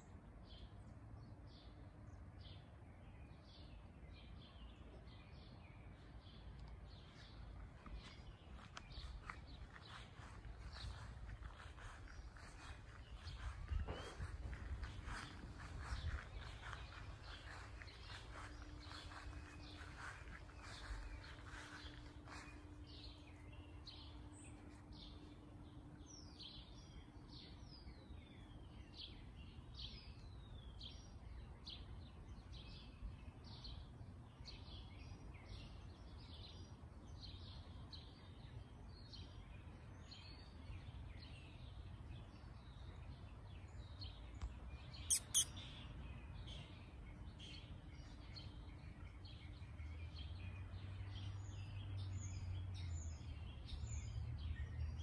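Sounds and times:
small birds chirping in chorus: 0.0s - 55.0s.

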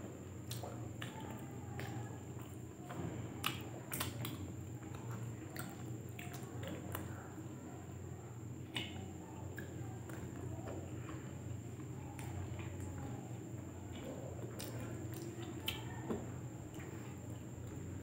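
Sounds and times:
people chewing: 0.0s - 18.0s
steady low hum: 0.0s - 18.0s
wet lip smacks and mouth clicks: 8.7s - 9.7s.

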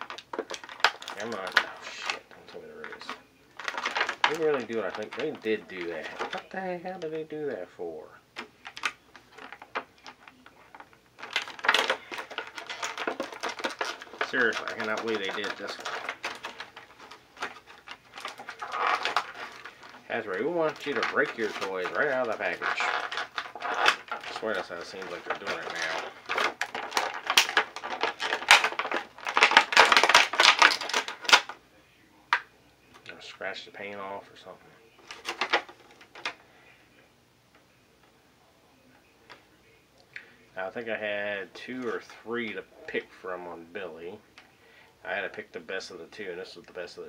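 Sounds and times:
plastic packaging crinkling: 0.0s - 7.7s, 8.4s - 31.6s, 33.0s - 36.4s.

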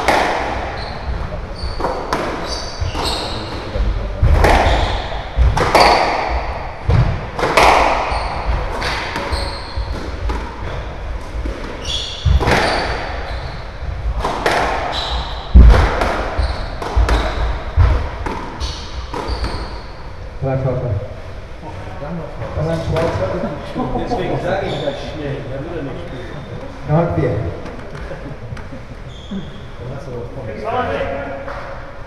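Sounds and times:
squash ball smacking rackets and walls: 0.0s - 20.0s
shoes squeaking on wooden floor: 0.7s - 4.0s, 8.1s - 10.0s, 11.8s - 13.8s, 16.4s - 17.5s, 18.6s - 20.0s, 28.6s - 29.7s.

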